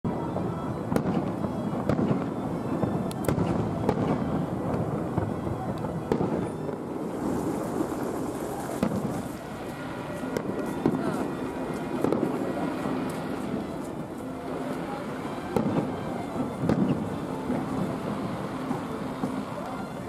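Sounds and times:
fireworks bangs and pops: 0.3 - 20.0
high fizzing crackle: 6.7 - 20.0.

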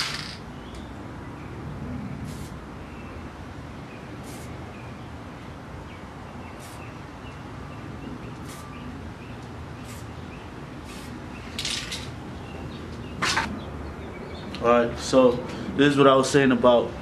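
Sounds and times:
spray can hissing bursts: 2.3 - 2.5, 4.2 - 4.5, 6.6 - 6.8, 8.4 - 8.6, 9.8 - 10.1, 10.8 - 11.2.

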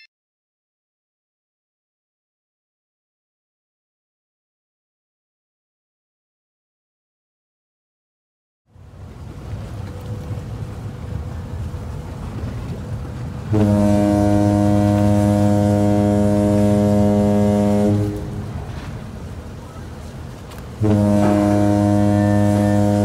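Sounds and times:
low rumble of engines and water: 8.7 - 23.0
ferry horn long low blast: 9.1 - 23.0.

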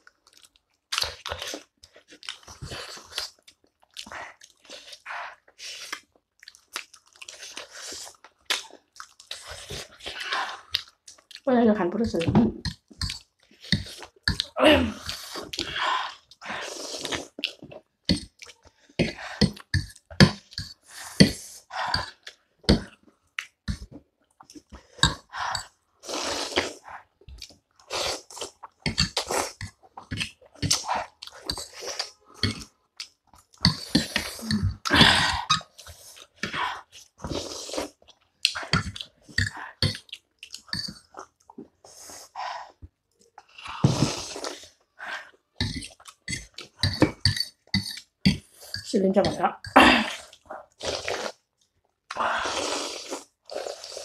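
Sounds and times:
wet smacking chews: 0.0 - 11.5, 26.5 - 41.9, 44.3 - 48.8
noodles being slurped: 0.2 - 11.4, 12.6 - 48.9, 49.9 - 54.0.

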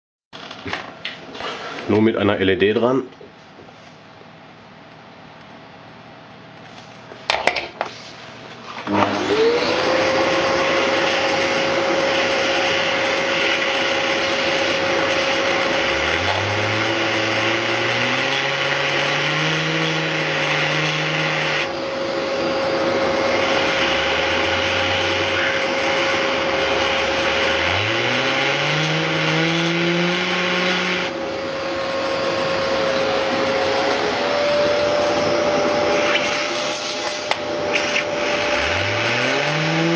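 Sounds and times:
vacuum cleaner running: 8.6 - 39.9
low hum rising in pitch: 15.7 - 36.0.

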